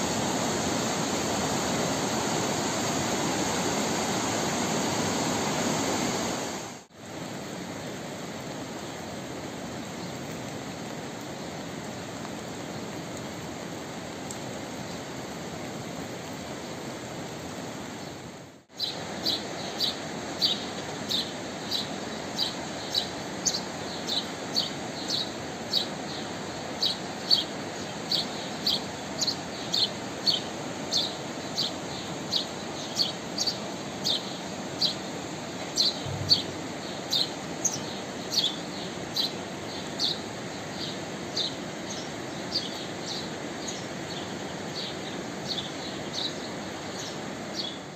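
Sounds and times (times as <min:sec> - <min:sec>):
background hiss: 0:00.0 - 0:47.9
bird high chirps: 0:35.8 - 0:38.6.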